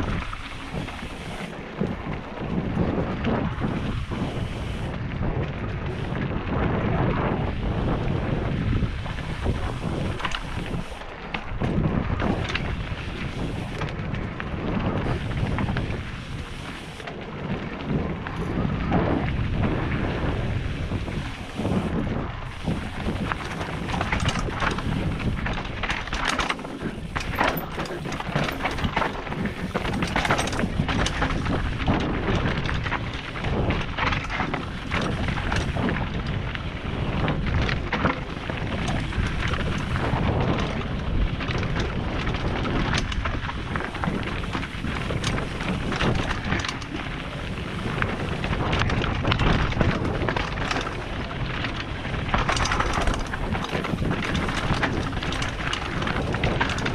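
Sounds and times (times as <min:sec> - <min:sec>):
bike tyres rumbling on gravel: 0:00.0 - 0:56.9
wind on microphone: 0:00.0 - 0:56.9
wheels knocking on stones: 0:07.6 - 0:56.9.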